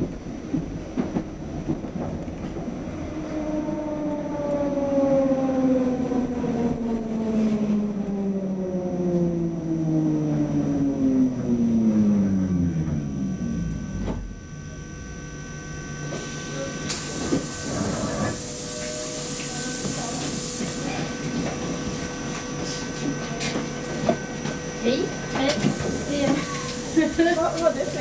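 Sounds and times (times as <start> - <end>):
tram clunk: 0.0 - 3.5, 12.7 - 15.1, 16.0 - 28.0
tram motors whining down: 2.3 - 28.0
compressed air hiss: 25.6 - 27.2.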